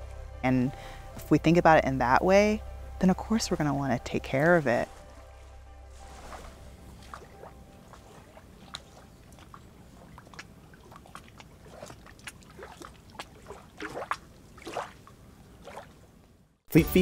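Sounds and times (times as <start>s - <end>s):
small waves lapping: 2.3s - 16.4s
water splashes and plops: 4.1s - 16.4s.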